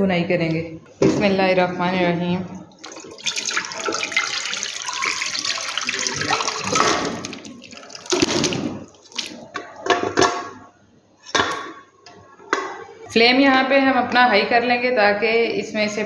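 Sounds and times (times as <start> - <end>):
liquid pouring and splashing: 2.7 - 9.8
meat splashing and knocking: 2.8 - 10.4.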